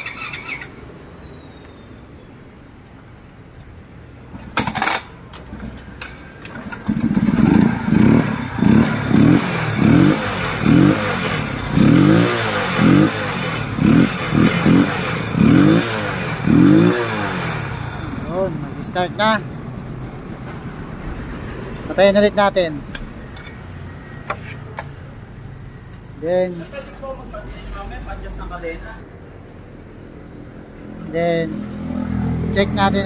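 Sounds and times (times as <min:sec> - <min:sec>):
scooter engine revving: 0:00.0 - 0:00.7, 0:06.5 - 0:21.4
engine clatter: 0:04.3 - 0:23.5.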